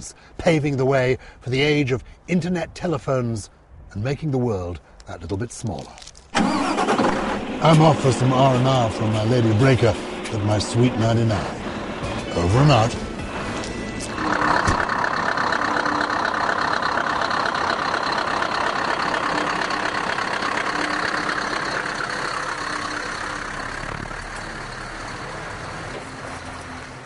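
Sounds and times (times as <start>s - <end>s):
lorry diesel engine pulling away: 6.4s - 27.0s.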